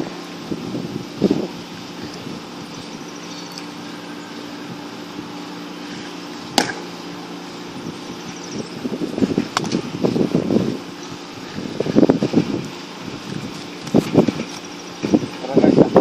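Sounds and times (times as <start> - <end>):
steady low hum: 0.0 - 16.0
wind and handling rumble: 0.0 - 16.0
baseball popping into mitt: 6.6 - 6.9.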